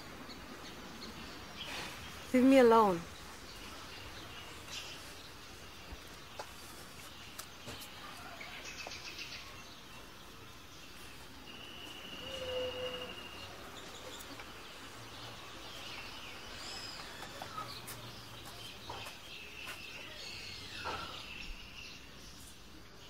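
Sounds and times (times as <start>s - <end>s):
low background noise: 0.0s - 23.0s
birds chirping and whistling: 10.8s - 22.4s.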